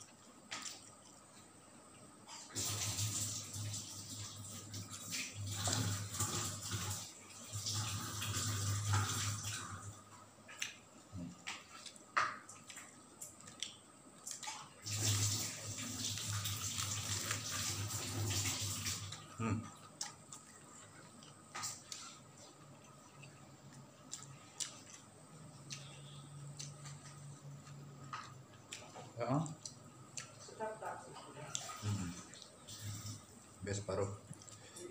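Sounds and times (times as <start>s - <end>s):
wet chewing and mouth sounds: 0.0s - 2.5s, 10.1s - 14.8s, 16.0s - 30.6s, 31.2s - 33.2s, 34.2s - 34.9s.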